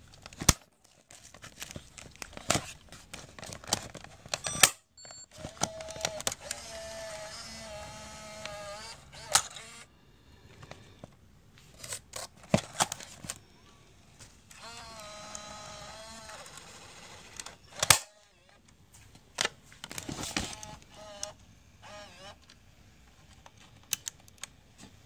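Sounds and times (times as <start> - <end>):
small motor whining: 5.4 - 9.9, 14.5 - 18.5, 20.5 - 22.4.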